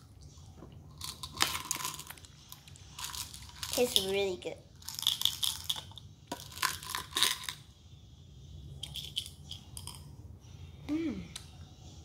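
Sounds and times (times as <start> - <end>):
candies rattling in plastic jar: 0.9 - 7.6, 8.8 - 10.0.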